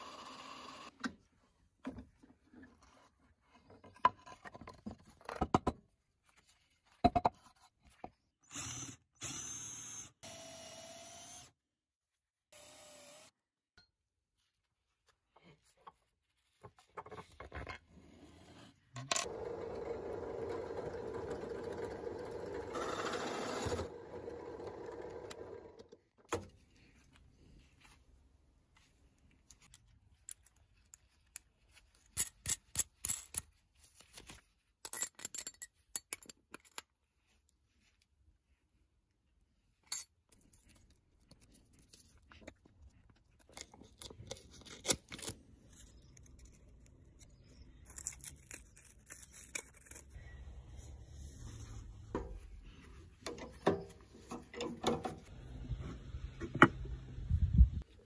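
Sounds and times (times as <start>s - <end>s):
cordless drill running: 0.0s - 0.9s, 8.5s - 11.5s, 12.6s - 13.3s, 19.3s - 25.6s.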